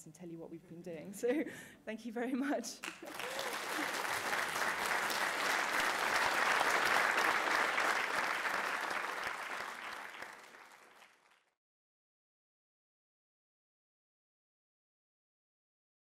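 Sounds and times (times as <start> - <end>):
audience applauding: 2.8 - 11.5.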